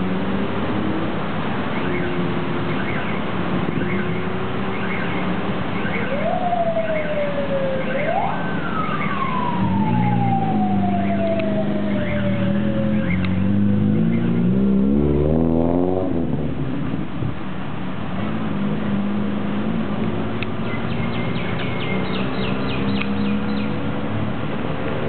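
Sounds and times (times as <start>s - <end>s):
car engine revving: 0.0s - 5.6s, 9.3s - 17.2s, 18.0s - 25.0s
siren wailing: 1.7s - 15.6s.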